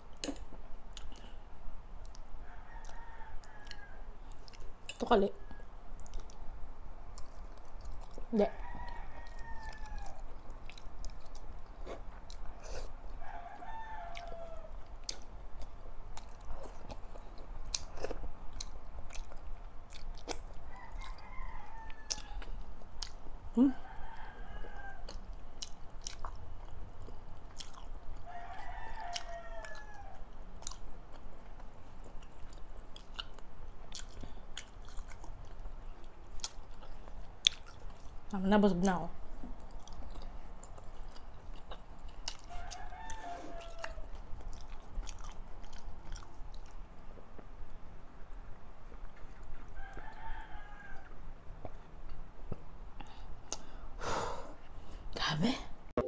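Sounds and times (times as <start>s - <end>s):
close chewing with mouth clicks: 0.0s - 1.4s, 2.0s - 5.1s, 5.9s - 47.6s, 48.9s - 53.8s
rooster crowing: 2.4s - 4.2s, 8.4s - 10.3s, 13.2s - 14.8s, 20.7s - 22.6s, 23.6s - 25.2s, 28.2s - 30.3s, 42.2s - 44.8s, 49.6s - 51.3s.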